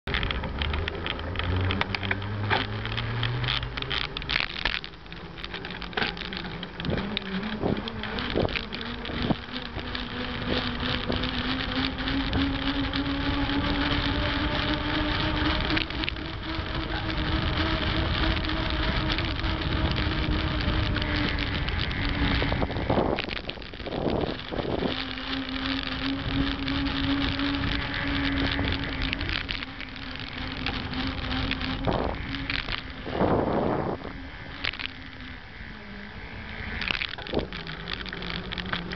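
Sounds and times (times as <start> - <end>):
bike tyres whining on pavement: 0.0 - 38.9
wind and road noise: 0.0 - 38.9.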